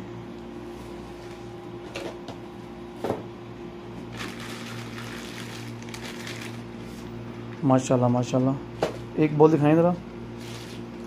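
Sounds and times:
plastic and cardboard rustling: 0:04.1 - 0:07.1.

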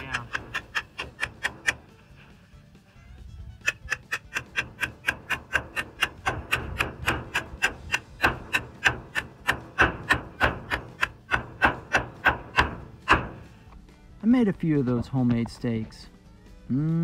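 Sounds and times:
hammer striking stakes: 0:00.0 - 0:02.1, 0:03.6 - 0:13.6.

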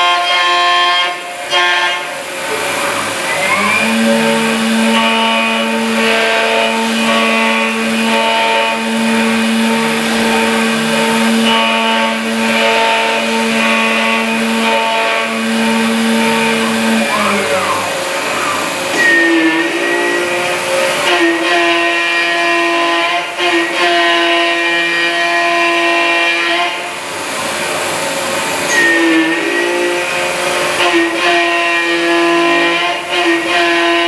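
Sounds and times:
milling machine humming: 0:00.0 - 0:34.0
short sliding tone: 0:15.9 - 0:22.0, 0:28.7 - 0:31.3.

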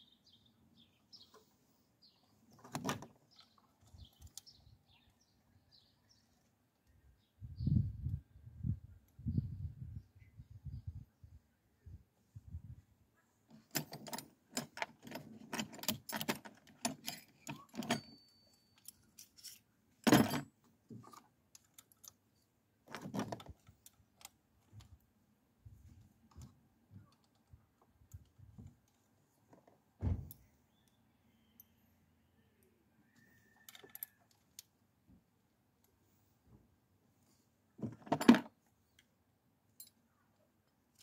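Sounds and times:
hand tools clinking on metal: 0:13.6 - 0:20.5.

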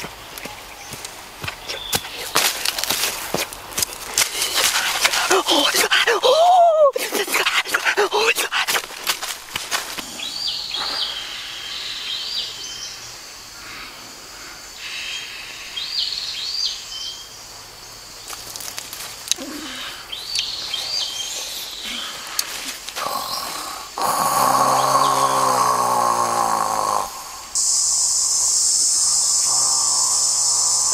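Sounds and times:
birds chirping: 0:00.0 - 0:30.9
person snoring loudly: 0:23.0 - 0:27.6, 0:29.0 - 0:30.9.

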